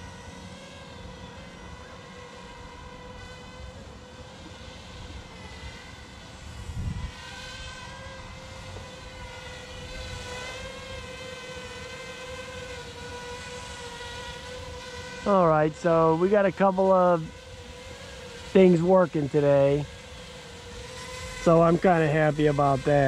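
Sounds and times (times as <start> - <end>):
drone propeller whine: 0.0 - 23.0
wind buffeting microphone: 6.5 - 7.8.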